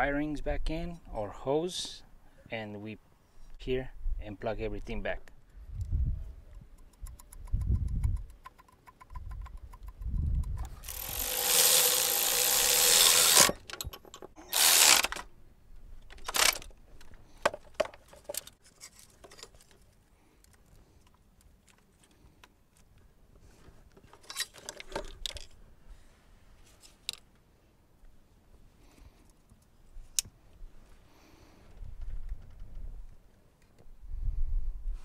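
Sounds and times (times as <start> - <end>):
clicks and rattles of parts: 6.8 - 15.3, 16.0 - 23.0, 23.6 - 25.6
cordless power tool bursts: 10.8 - 13.7, 14.4 - 15.3, 16.2 - 16.7.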